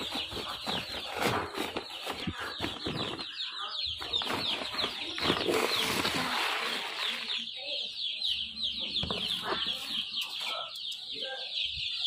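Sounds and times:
knocks and rustling of handling: 0.0s - 3.4s
chicks peeping: 0.0s - 12.0s.

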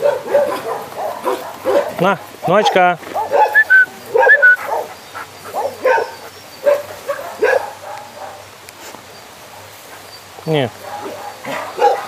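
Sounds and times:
dogs barking and yelping: 0.0s - 8.6s, 9.4s - 12.0s
dogs whining: 3.2s - 4.9s.

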